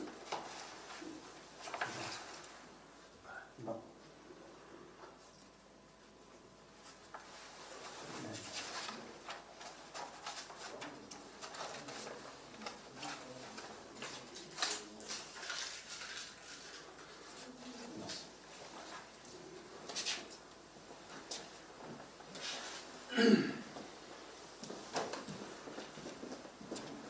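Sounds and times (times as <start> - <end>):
paper pages rustling: 0.0 - 2.6, 6.8 - 19.1.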